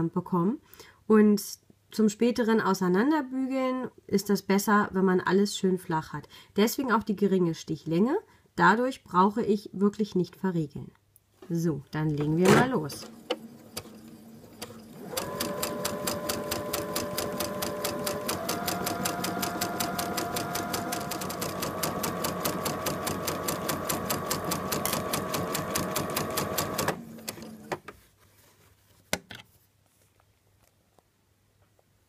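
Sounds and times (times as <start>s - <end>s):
sewing machine sewing: 12.9s - 27.9s.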